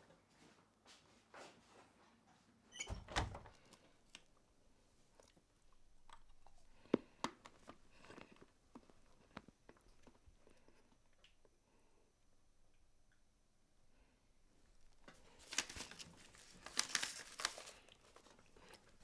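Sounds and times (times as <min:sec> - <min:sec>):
person chewing: 0:05.2 - 0:11.3.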